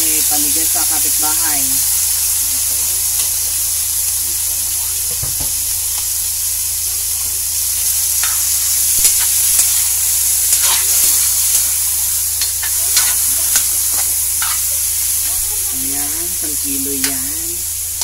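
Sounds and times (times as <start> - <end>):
chicken sizzling in hot oil: 0.0 - 18.0
metal spatula scraping wok: 8.2 - 17.6.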